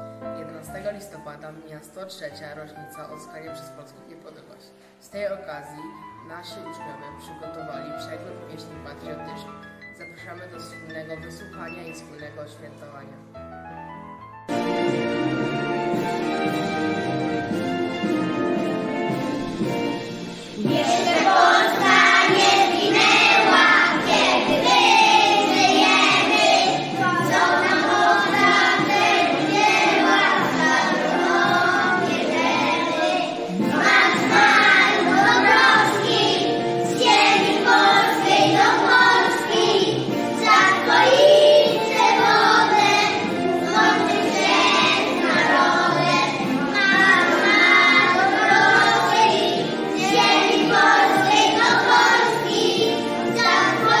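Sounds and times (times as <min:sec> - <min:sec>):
children's choir singing: 0:14.5 - 0:54.0.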